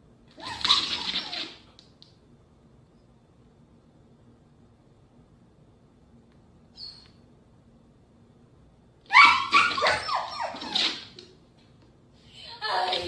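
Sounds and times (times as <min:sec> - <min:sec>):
dogs barking and yipping: 0:00.4 - 0:01.6, 0:09.1 - 0:11.1.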